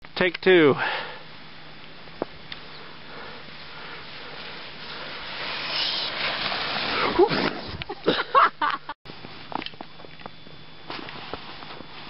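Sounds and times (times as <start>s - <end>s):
sliding on snow scraping hiss: 2.6s - 7.8s, 10.9s - 12.0s.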